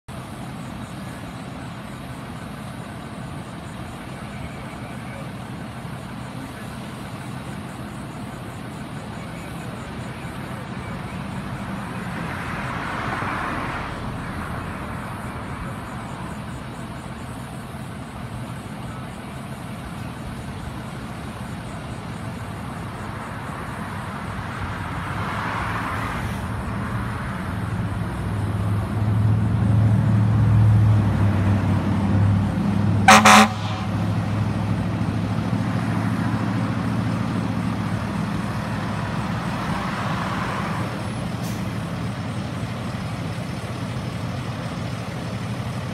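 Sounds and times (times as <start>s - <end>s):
ambulance engine running: 0.1s - 45.9s
short horn toot: 33.1s - 34.1s.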